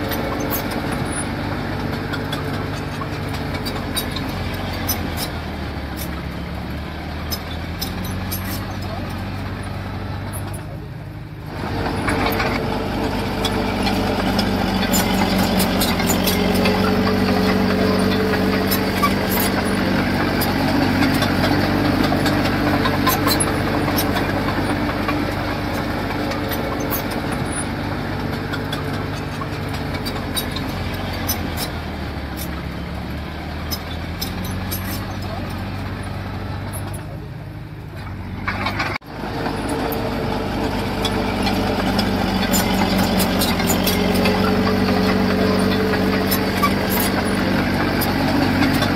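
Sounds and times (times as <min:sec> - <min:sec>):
diesel engine of heavy machine: 0:00.0 - 0:48.9
light metal clanks: 0:07.2 - 0:10.9, 0:11.6 - 0:32.8.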